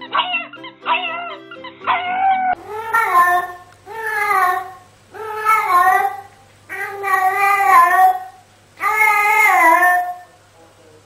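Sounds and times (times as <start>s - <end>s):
dog howling: 0.0s - 10.3s
cat meowing: 0.0s - 10.4s.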